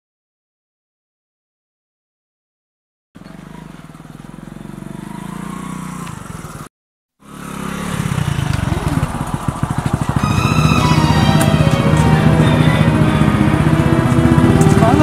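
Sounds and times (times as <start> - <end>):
motorcycle engine idling: 3.2 - 15.0.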